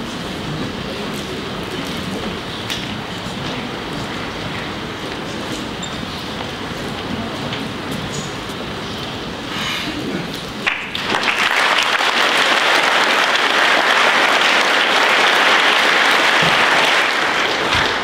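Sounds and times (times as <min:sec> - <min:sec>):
schoolboys applauding: 0:10.6 - 0:18.0.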